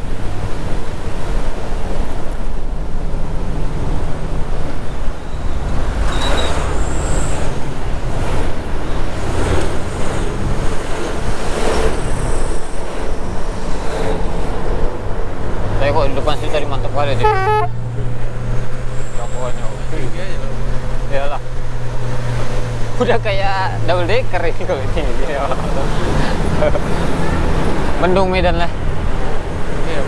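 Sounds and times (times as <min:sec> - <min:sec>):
wind rushing over microphone: 0:00.0 - 0:15.8
bus engine and road rumble: 0:00.0 - 0:30.0.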